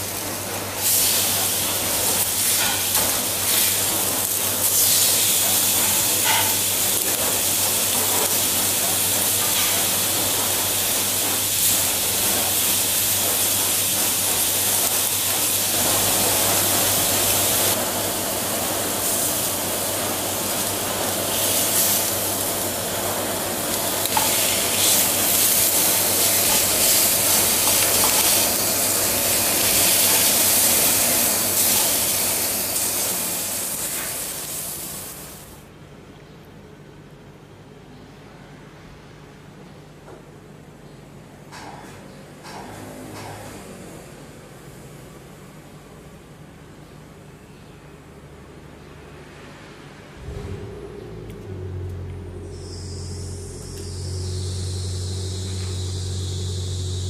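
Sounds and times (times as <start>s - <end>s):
meat sizzling on grill pan: 0.8s - 10.2s, 14.6s - 35.6s.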